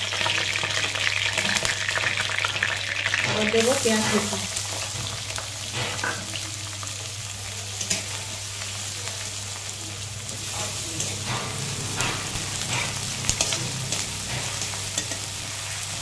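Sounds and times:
onion sizzling in hot oil: 0.0 - 16.0
metal spatula scraping pan: 10.3 - 16.0.

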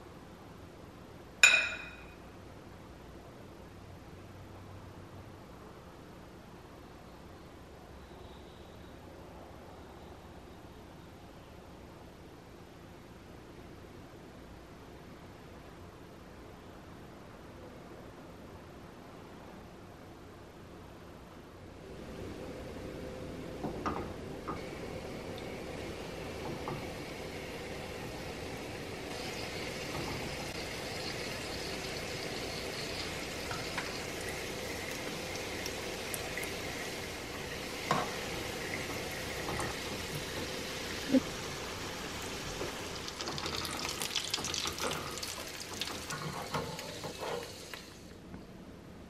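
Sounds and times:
spatula knocking on pan: 1.4 - 2.1
pastry sizzling in hot oil: 23.7 - 48.2.

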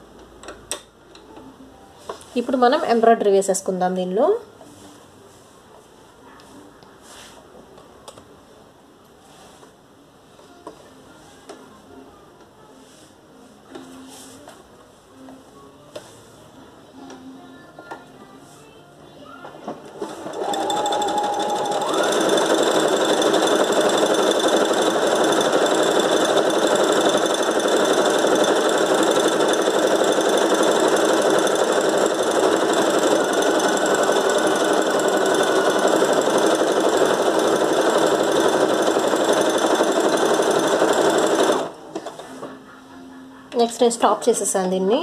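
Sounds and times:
sewing machine sewing: 19.9 - 42.3.

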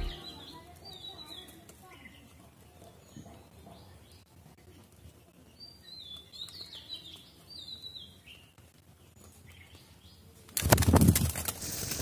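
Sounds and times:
small birds chirping: 0.0 - 10.4
bird wings clattering: 10.5 - 12.0.

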